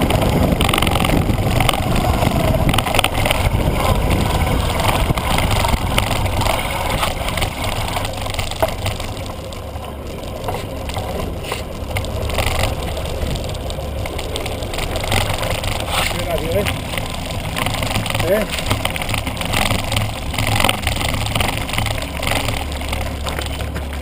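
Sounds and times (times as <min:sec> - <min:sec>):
wind on microphone: 0:00.0 - 0:09.6
bike rattling: 0:00.0 - 0:24.0
tyres crunching on stones: 0:00.0 - 0:24.0.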